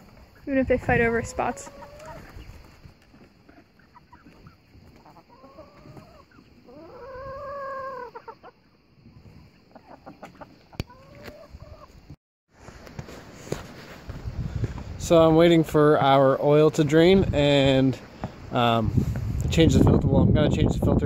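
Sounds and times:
hens clucking: 0.1 - 12.1.

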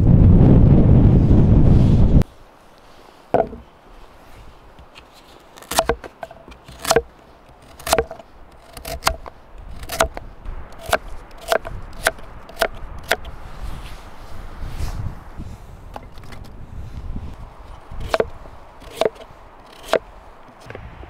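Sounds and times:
knife chopping carrots on wood: 5.6 - 6.1, 6.7 - 10.2, 10.8 - 13.3, 18.0 - 20.0.

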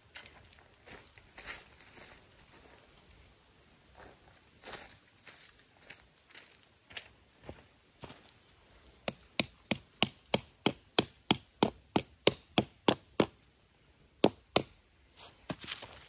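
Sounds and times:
sharp strikes on wood: 9.0 - 13.4, 14.2 - 14.8.

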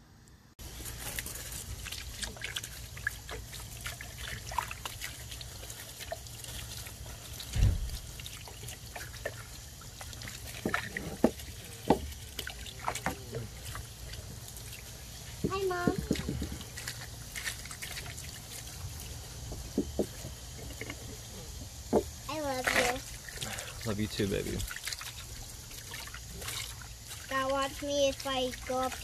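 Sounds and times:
hose water splashing: 0.6 - 29.0
low thump: 7.5 - 8.0
small knocks: 19.5 - 21.2.

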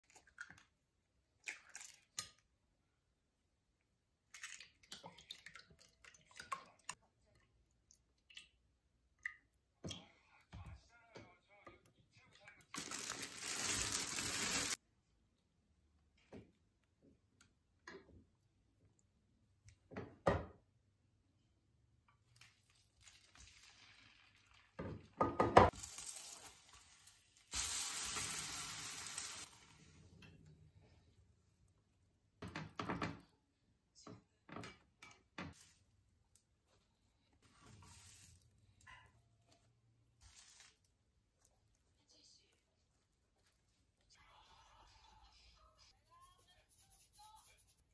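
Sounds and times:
bread sizzling in a pan: 12.8 - 14.8, 25.7 - 29.8.

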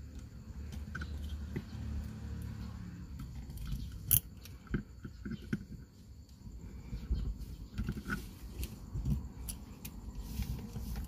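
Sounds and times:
rubbing and fumbling: 0.0 - 11.0.

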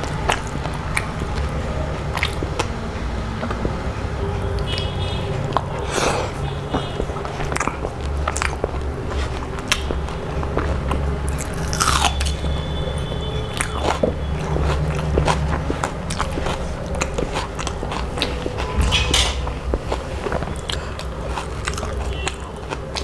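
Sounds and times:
person chewing crunchy food: 0.0 - 23.0
steady low hum: 13.7 - 23.0.

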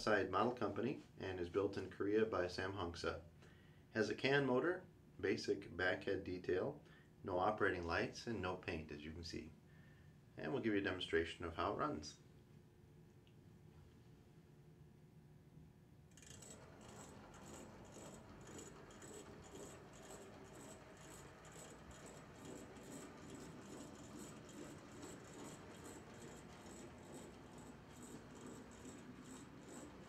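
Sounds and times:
model train rattling and clicking: 16.2 - 30.0.

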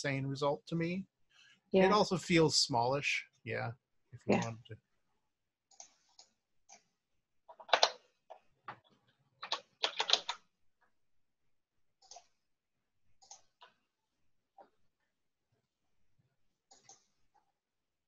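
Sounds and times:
keyboard typing: 7.5 - 10.5, 12.0 - 12.4.

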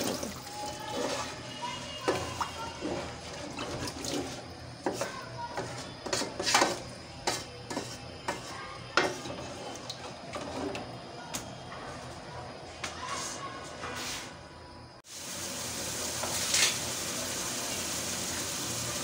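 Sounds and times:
spatula scraping a metal pot: 0.6 - 10.9.

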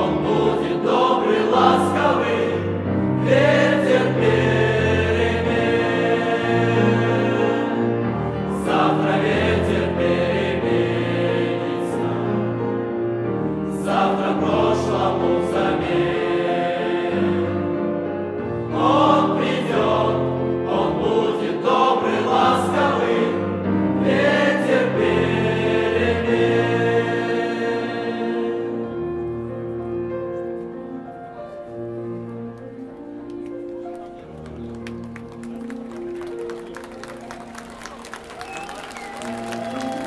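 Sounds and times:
mixed choir singing in harmony: 0.0 - 30.7.

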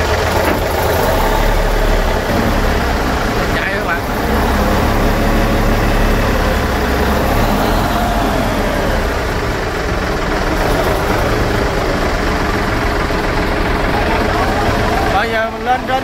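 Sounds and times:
diesel engine running loud: 0.0 - 16.0.

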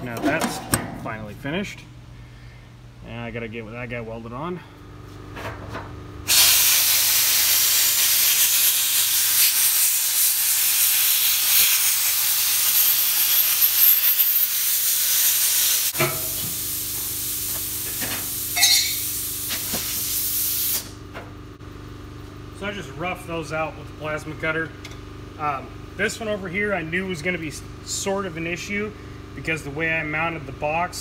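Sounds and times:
plasma cutter hissing: 6.3 - 20.9.

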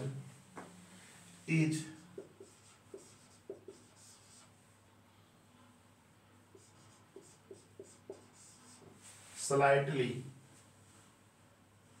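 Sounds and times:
marker writing on whiteboard: 1.8 - 4.6, 6.4 - 9.1.

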